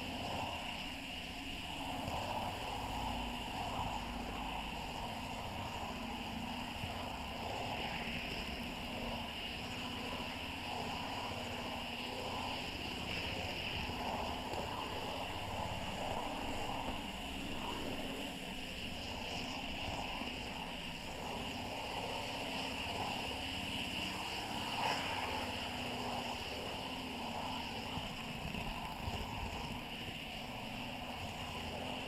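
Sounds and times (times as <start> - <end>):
model train rumbling whir: 0.0 - 32.0.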